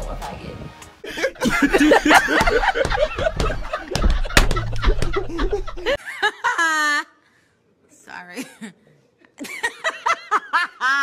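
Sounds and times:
men laughing: 1.0 - 7.2, 9.4 - 11.0
sharp slaps: 2.3 - 5.3.

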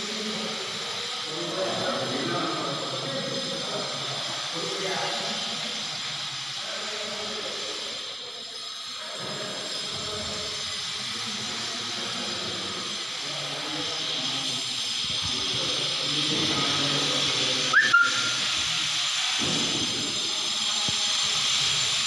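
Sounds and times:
short high chirp: 17.7 - 18.5.

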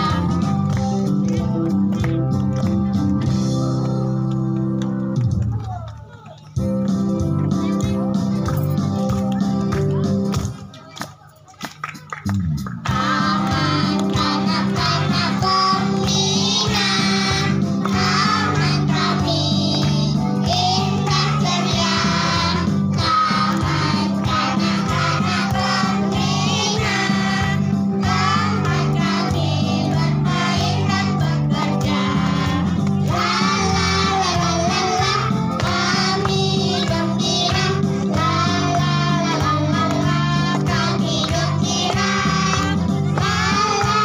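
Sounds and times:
instrumental backing music: 0.0 - 10.7, 11.8 - 44.0
child singing: 12.9 - 44.0.

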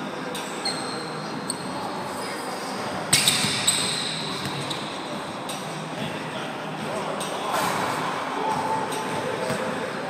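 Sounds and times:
sneakers squeaking: 0.3 - 6.1, 7.1 - 10.0.

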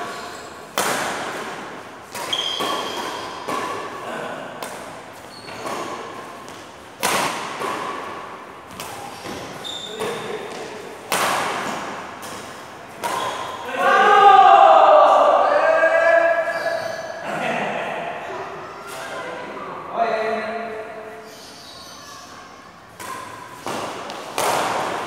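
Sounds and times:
shoes squeaking on court floor: 0.0 - 0.7, 1.3 - 4.1, 4.7 - 10.9, 11.6 - 13.7, 16.5 - 17.2, 21.1 - 25.0
rackets hitting shuttlecock: 0.0 - 13.7, 22.9 - 25.0.

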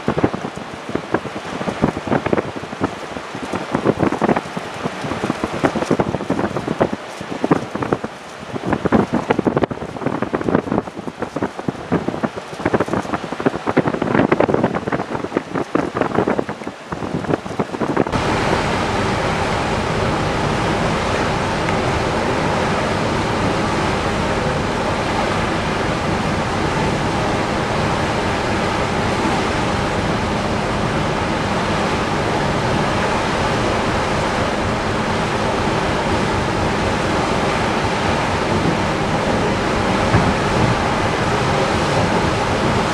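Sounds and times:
wind and water rushing: 0.0 - 42.9.

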